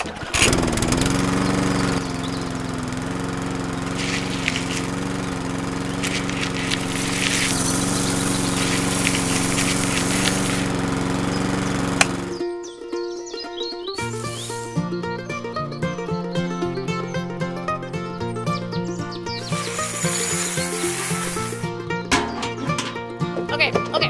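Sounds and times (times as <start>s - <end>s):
seeds rattling through machine: 0.2s - 12.4s, 14.0s - 14.9s, 19.4s - 23.0s
small electric motor humming: 0.4s - 12.4s, 14.0s - 15.0s, 19.3s - 21.8s.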